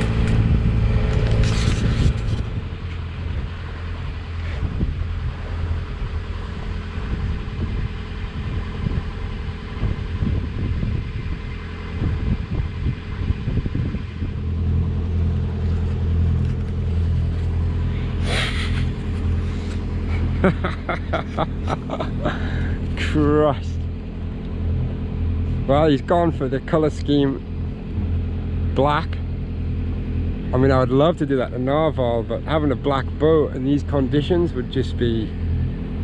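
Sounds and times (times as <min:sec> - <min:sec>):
wind buffeting microphone: 0:00.0 - 0:20.4
low engine hum: 0:00.0 - 0:36.0.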